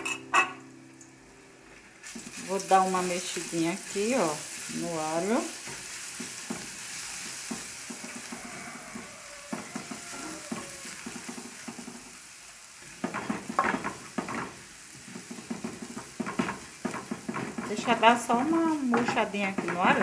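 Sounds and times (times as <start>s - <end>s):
garlic sizzling in oil: 1.9s - 20.0s
wooden spoon scraping a pan: 13.0s - 20.0s.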